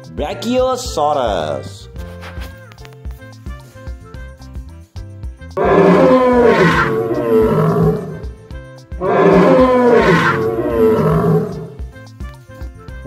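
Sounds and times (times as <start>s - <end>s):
background music: 0.0s - 13.0s
dinosaur calls sliding down: 5.6s - 8.3s, 9.0s - 11.8s.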